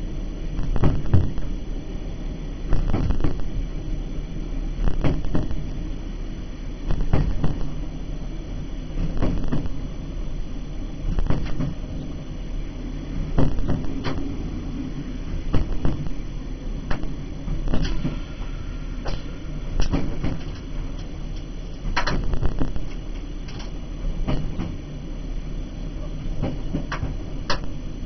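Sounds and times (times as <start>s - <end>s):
train low rumble: 0.0s - 28.0s
sharp wheel clicks on rail joints: 19.1s - 22.2s, 26.4s - 27.7s.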